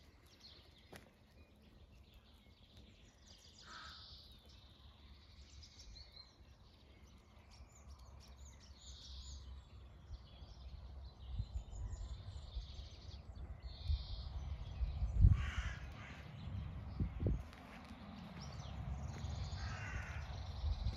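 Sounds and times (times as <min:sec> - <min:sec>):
crows cawing: 0:03.6 - 0:04.1, 0:15.3 - 0:16.4, 0:19.5 - 0:20.5.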